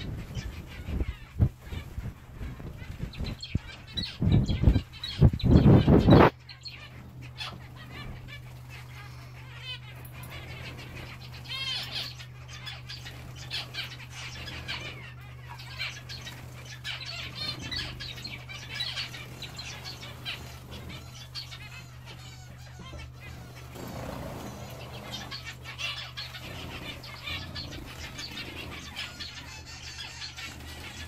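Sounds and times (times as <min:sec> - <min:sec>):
finches chirping: 0:00.0 - 0:31.0
wing flutters: 0:00.0 - 0:31.0.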